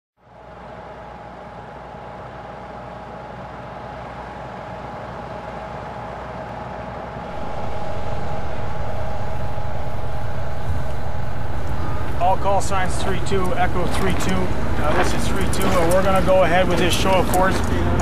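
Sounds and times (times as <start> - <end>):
steady mechanical hum: 0.2 - 18.0
deep engine rumble: 7.2 - 18.0.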